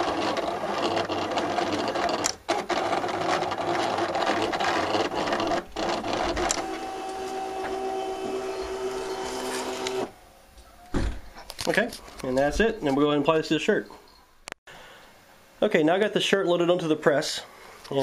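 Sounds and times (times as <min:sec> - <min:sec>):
cutter motor buzzing and whining: 0:00.0 - 0:10.1.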